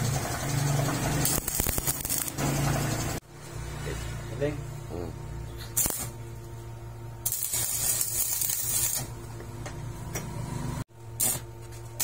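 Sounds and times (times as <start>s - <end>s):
welding arc crackling and hissing: 0.1s - 3.2s, 5.6s - 6.2s, 7.2s - 9.2s, 11.2s - 12.0s.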